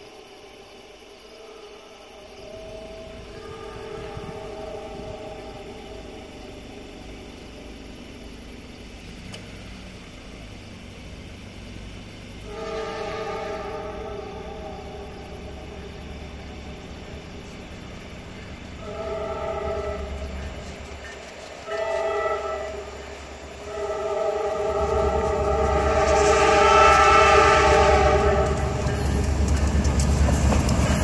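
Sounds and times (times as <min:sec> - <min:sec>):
locomotive air horn blasts: 0:01.3 - 0:06.0, 0:12.4 - 0:16.0, 0:18.7 - 0:20.7, 0:21.6 - 0:29.2
low engine rumble: 0:02.2 - 0:31.0.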